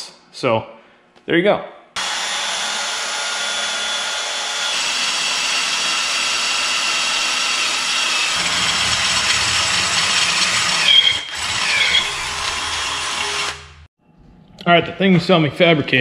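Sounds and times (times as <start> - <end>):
drill bit squeal: 2.0 - 13.6
drill whirring into metal: 2.0 - 13.9.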